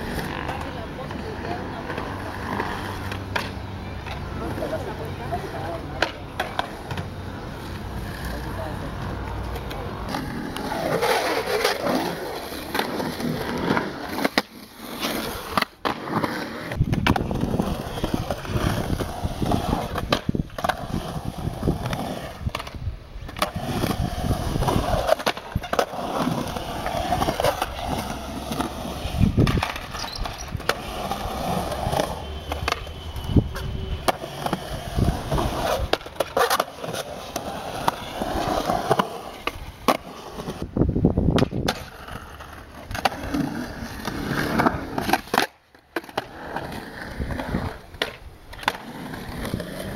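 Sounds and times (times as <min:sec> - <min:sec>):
skateboard wheels rolling: 0:00.0 - 0:49.9
skateboard clacks and knocks: 0:41.2 - 0:42.0.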